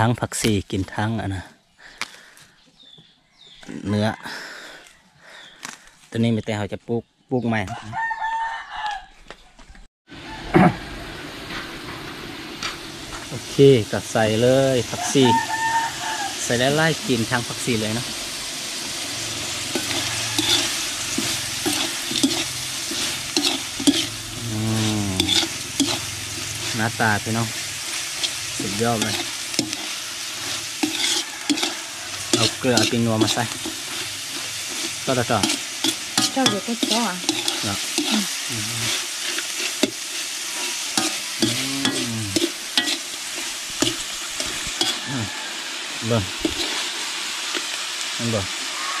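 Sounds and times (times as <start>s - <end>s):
meat sizzling in oil: 10.2s - 49.0s
metal spatula scraping wok: 11.8s - 47.6s.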